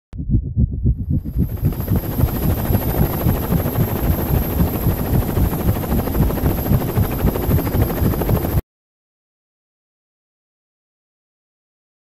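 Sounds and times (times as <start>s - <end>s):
high whine: 0.2s - 8.6s
helicopter rotor blades chopping: 0.4s - 8.6s.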